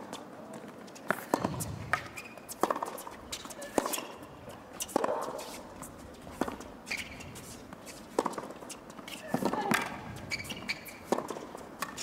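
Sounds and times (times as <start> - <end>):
shoe squeak: 0.9 - 4.2, 6.8 - 12.0
tennis racket striking ball: 1.1 - 3.1.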